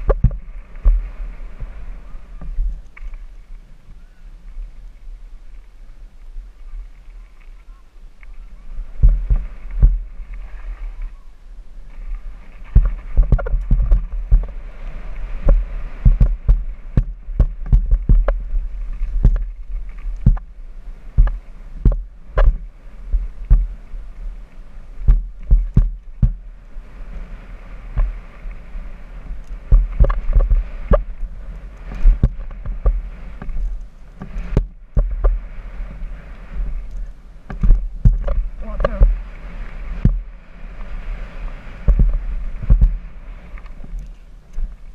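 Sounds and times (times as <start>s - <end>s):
wind rumble on microphone: 0.0s - 44.9s
tyre noise: 6.8s - 24.0s, 24.9s - 26.5s, 27.1s - 40.4s
bike knocking over bumps: 12.7s - 14.6s, 15.4s - 18.5s, 21.2s - 23.8s.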